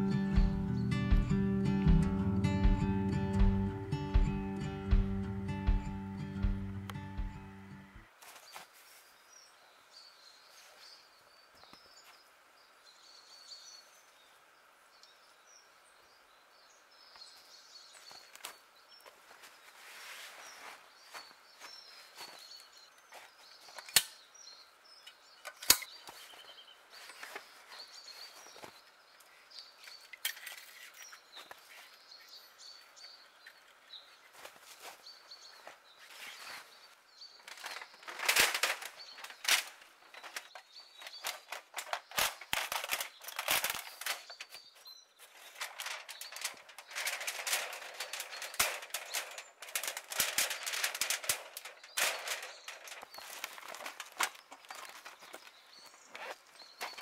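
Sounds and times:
rustling and crunching in snow: 8.1 - 9.3, 17.9 - 23.8, 34.2 - 57.0.

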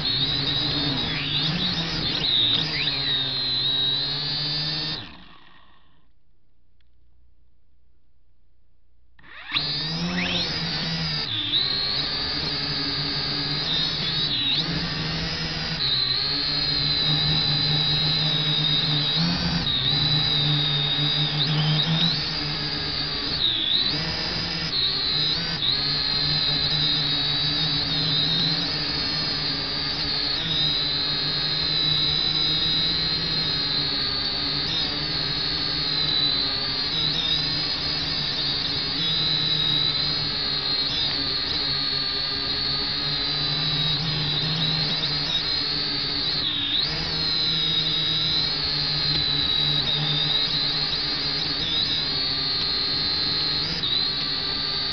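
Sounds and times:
drone motors whining: 0.0 - 7.3, 9.2 - 54.9.

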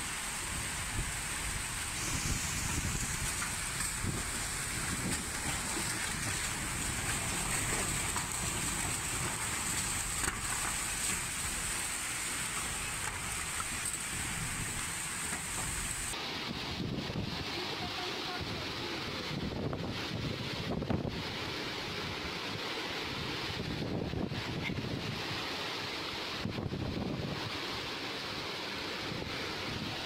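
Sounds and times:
strong wind: 0.0 - 11.9, 12.5 - 30.0
torrential rain: 0.0 - 30.0
wind buffeting microphone: 0.5 - 11.5, 19.2 - 21.4, 23.4 - 25.3, 26.4 - 27.6.

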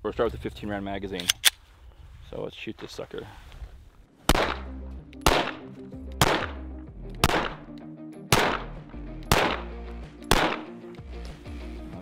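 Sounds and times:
pistol shots: 4.3 - 6.6, 7.2 - 7.7, 8.3 - 9.7, 10.3 - 10.8.

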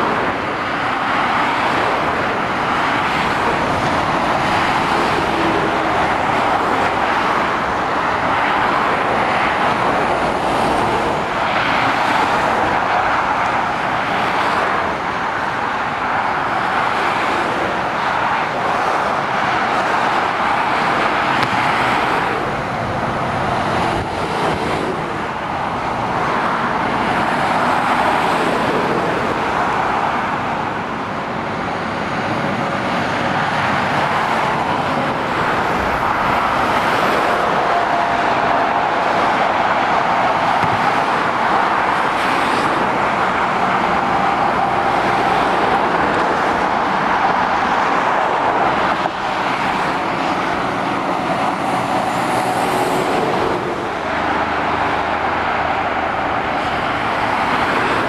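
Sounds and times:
motorway traffic rushing past: 0.0 - 58.0.

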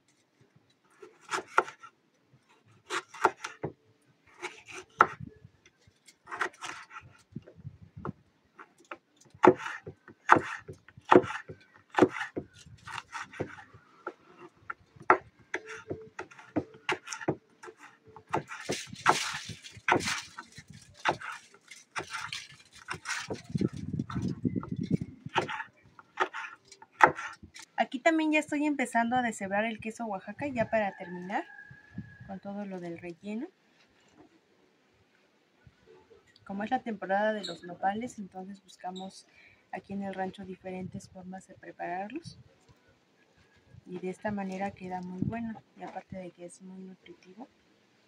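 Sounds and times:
knife chopping on wooden board: 9.4 - 14.4, 26.2 - 27.4.

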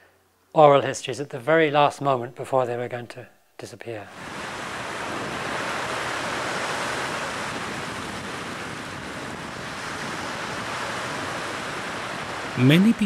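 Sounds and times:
small waves breaking on sand: 4.1 - 13.0.

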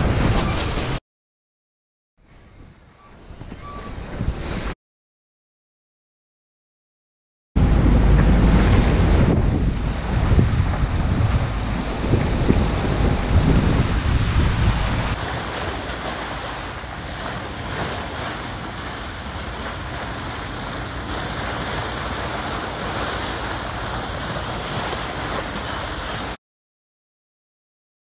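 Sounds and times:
wind noise on microphone: 0.0 - 1.0, 2.2 - 4.8, 7.6 - 26.4
sea water rushing past hull: 7.6 - 26.4.

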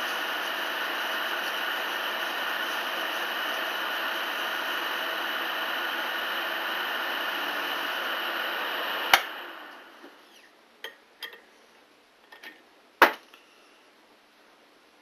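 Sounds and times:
electric motor running: 0.0 - 10.0.

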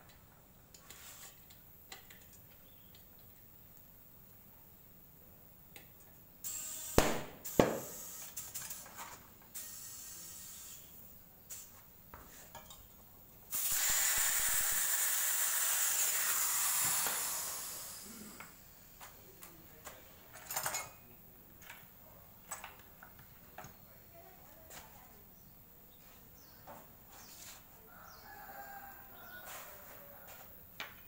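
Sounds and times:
compressed air hissing: 6.6 - 8.5, 13.5 - 19.0.

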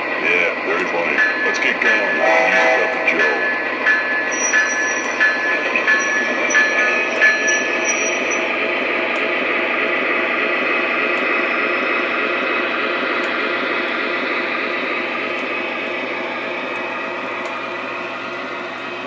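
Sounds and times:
ringing ding: 3.1 - 8.4.

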